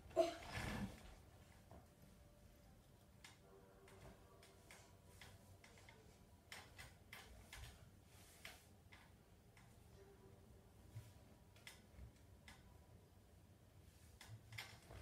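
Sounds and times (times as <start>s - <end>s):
faint clicks and taps: 2.8s - 10.0s, 11.0s - 12.8s.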